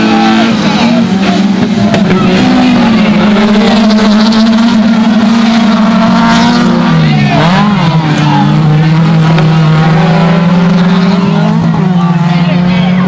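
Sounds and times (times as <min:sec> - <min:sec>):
race car engines at high revs: 0:00.0 - 0:13.0.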